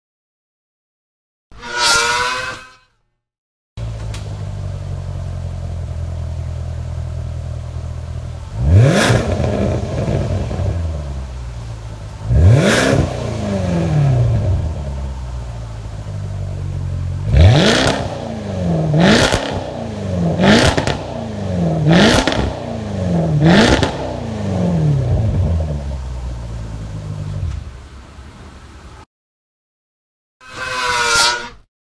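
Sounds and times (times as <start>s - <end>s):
car engine idling and revving: 3.8s - 29.0s.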